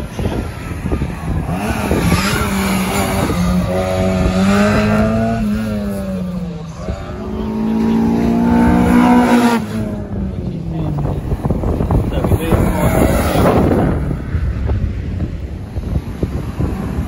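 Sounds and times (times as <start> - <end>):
car engine revving hard: 1.3 - 6.2, 7.1 - 10.0.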